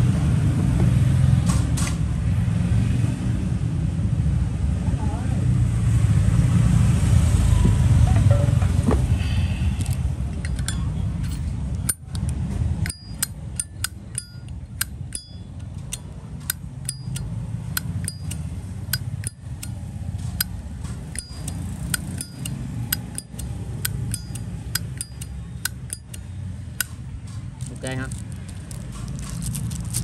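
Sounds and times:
steady low hum: 8.5s - 29.1s
lighter lid metallic clicks: 21.1s - 26.2s.

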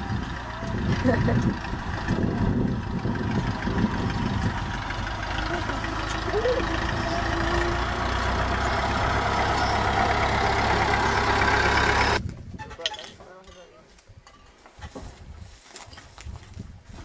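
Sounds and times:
tractor engine running: 0.0s - 12.2s.

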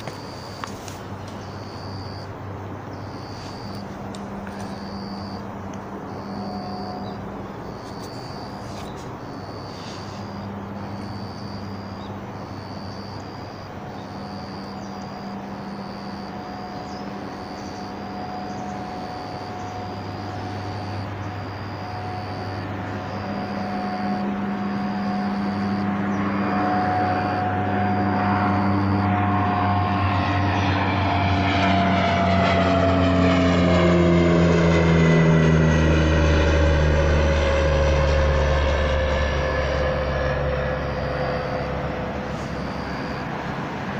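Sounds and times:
propeller aircraft droning overhead: 0.0s - 43.9s.

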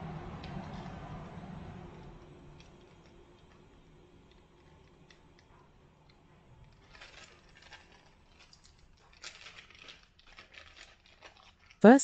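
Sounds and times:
plastic bag crinkling: 6.6s - 12.0s.

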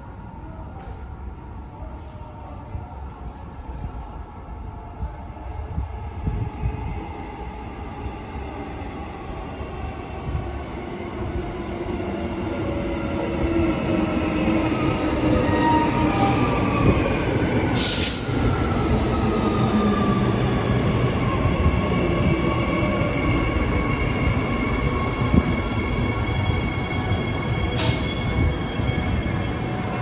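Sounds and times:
train hiss: 17.7s - 18.4s, 27.8s - 28.2s.

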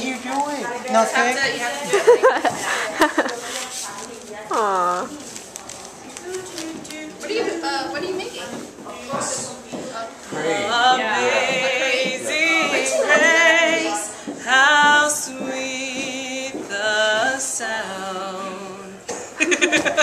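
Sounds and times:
woman laughing: 1.9s - 3.4s, 19.4s - 20.0s
woman singing unaccompanied: 6.0s - 8.2s, 10.3s - 19.1s.

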